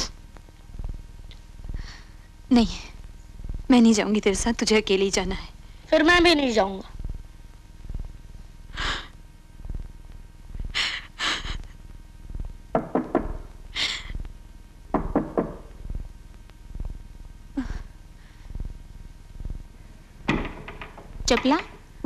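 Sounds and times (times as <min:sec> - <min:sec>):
woman sobbing: 0:10.7 - 0:11.8, 0:13.7 - 0:14.2, 0:17.5 - 0:18.0.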